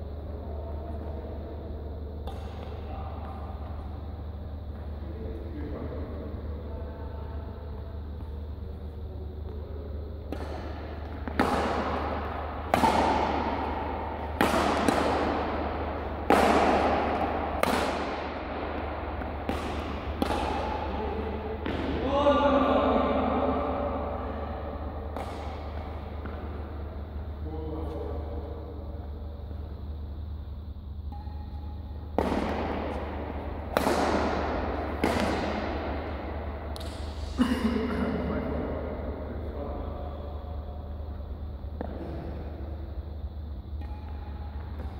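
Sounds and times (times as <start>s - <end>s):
steady low hum: 0.0s - 44.9s
rackets striking shuttlecock: 2.2s - 3.8s, 10.2s - 22.0s, 25.0s - 27.1s, 31.1s - 37.3s, 43.7s - 44.9s.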